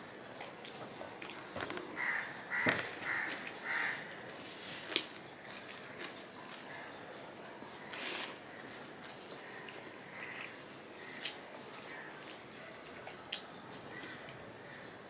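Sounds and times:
crow cawing: 2.0s - 4.2s.

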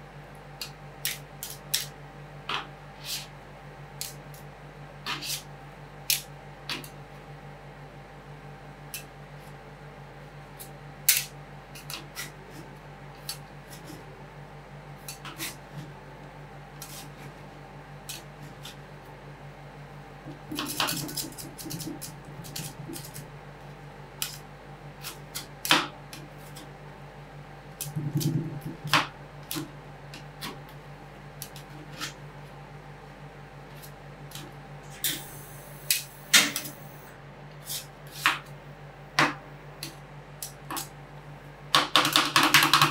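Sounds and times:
low hum: 19.0s - 25.0s, 26.7s - 31.2s.

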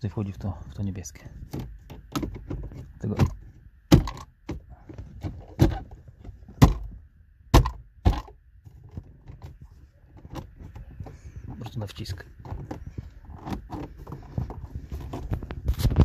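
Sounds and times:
plastic trim panel knocks and clicks: 1.5s - 5.8s, 6.6s - 8.3s.

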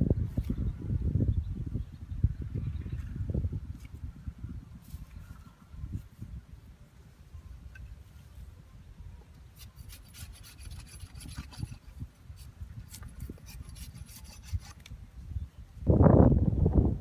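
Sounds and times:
hatchet blade scraping wood: 9.6s - 15.0s.

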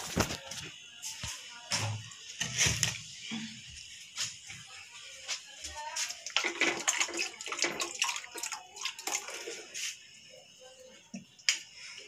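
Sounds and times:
tap water running and splashing: 1.7s - 10.2s.

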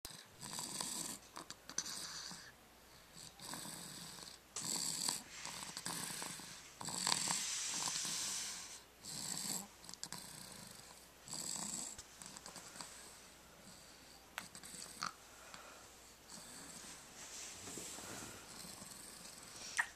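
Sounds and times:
baby snoring: 3.1s - 12.8s.

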